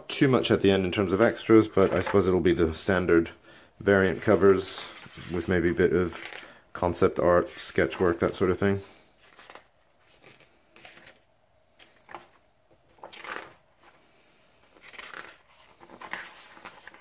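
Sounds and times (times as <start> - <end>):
book pages being turned: 1.2 - 2.3, 4.1 - 6.4, 9.2 - 14.0, 14.6 - 17.0.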